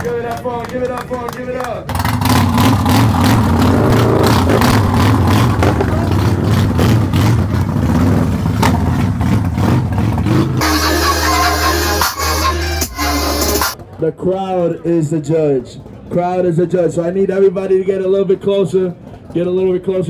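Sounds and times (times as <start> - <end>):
motorcycle engine revving: 1.8 - 12.1.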